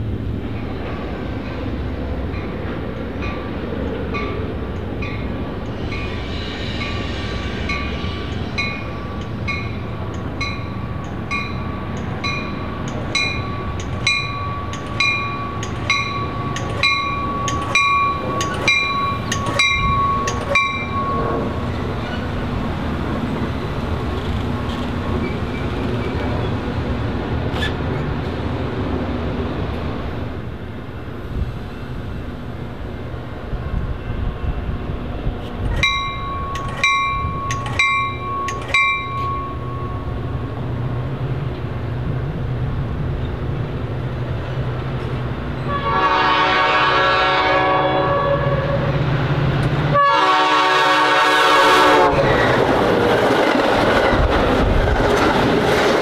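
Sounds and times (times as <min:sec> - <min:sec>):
train rumbling on rails: 0:00.0 - 0:56.0
crossing warning bell ringing: 0:02.3 - 0:22.2, 0:35.7 - 0:40.8.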